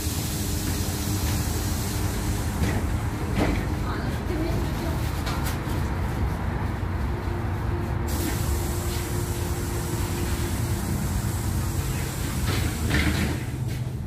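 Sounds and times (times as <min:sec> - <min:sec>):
high air hiss: 0:00.0 - 0:03.3, 0:08.1 - 0:13.5
bus engine idling: 0:00.0 - 0:14.0.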